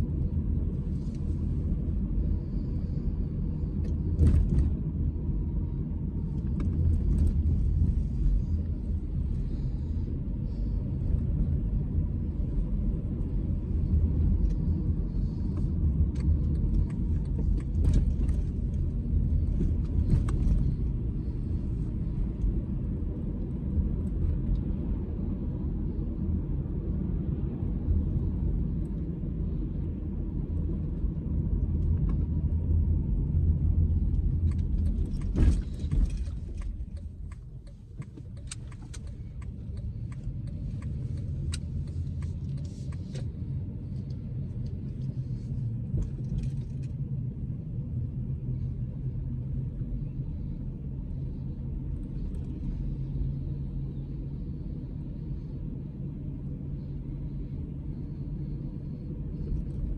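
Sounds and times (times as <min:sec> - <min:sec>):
car engine and road rumble: 0:00.0 - 0:59.9
light clicks and rattles: 0:34.2 - 0:43.3.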